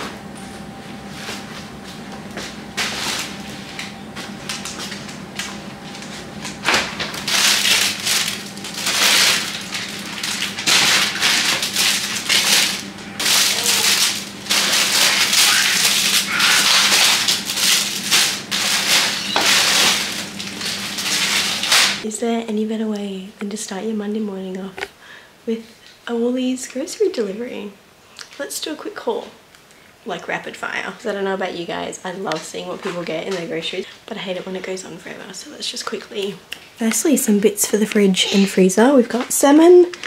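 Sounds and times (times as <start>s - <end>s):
paper bags rustling: 0.9s - 22.0s.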